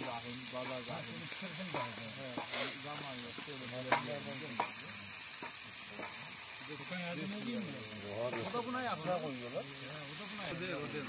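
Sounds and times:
spatula scraping a pan: 0.0 - 6.5
meat and vegetables sizzling: 0.0 - 11.0
spatula knocking on pan: 1.7 - 2.8, 3.4 - 4.8.

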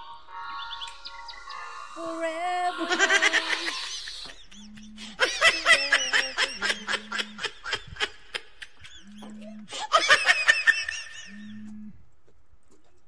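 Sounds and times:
music: 0.0 - 3.9
rapid laughter in bursts: 2.7 - 11.7.

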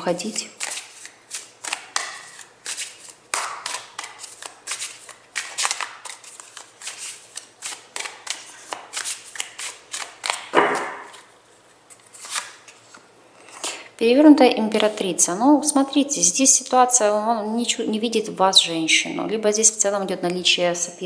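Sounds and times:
cards being shuffled: 0.6 - 13.1.

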